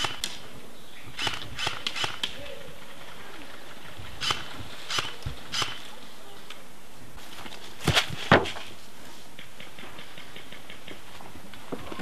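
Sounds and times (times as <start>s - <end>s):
airsoft guns firing: 0.0s - 0.4s.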